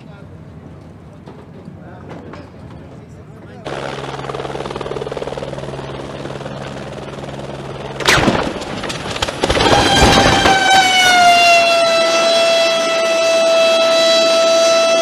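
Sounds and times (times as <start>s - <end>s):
helicopter rotor drone: 2.6s - 15.0s
loud steady whining tone: 3.7s - 15.0s
rotor blades smashing ground: 8.0s - 10.9s
helicopter crash bang: 8.0s - 11.7s.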